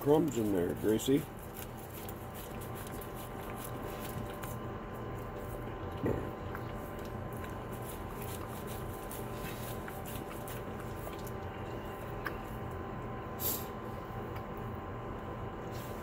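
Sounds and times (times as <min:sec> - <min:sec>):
dogs licking and smacking: 0:00.0 - 0:13.2, 0:14.0 - 0:15.3
steady hum: 0:00.0 - 0:16.0.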